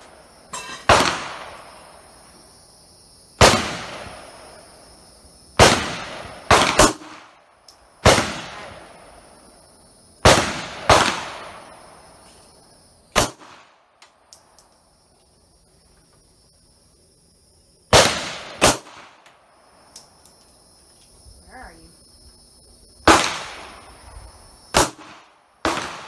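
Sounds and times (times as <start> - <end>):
pistol shots: 0.8 - 1.8, 3.4 - 4.5, 5.6 - 7.4, 8.0 - 9.0, 10.2 - 11.9, 13.1 - 13.8, 17.9 - 19.3, 23.0 - 23.9, 24.7 - 26.0.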